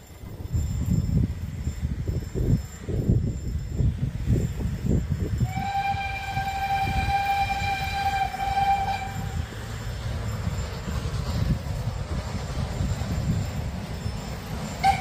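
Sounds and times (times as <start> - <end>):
steam locomotive whistle: 5.4 - 9.6, 14.8 - 15.0.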